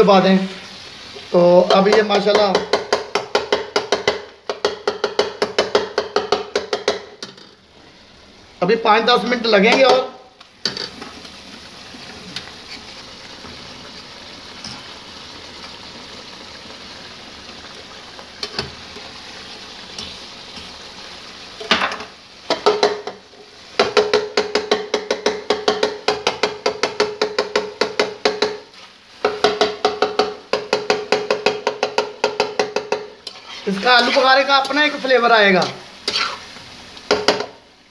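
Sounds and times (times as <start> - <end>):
chicken sizzling in a pan: 0.0 - 37.9
spatula scraping a pan: 33.2 - 36.6.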